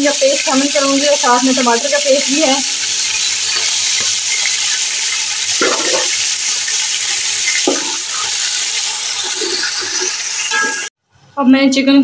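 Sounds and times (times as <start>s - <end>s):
chicken frying in oil: 0.0s - 10.9s.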